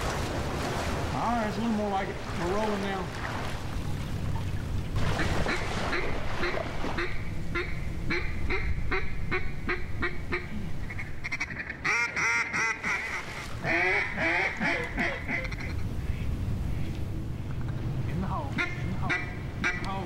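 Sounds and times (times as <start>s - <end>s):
duck call quacks: 5.2s - 16.3s, 18.6s - 19.9s.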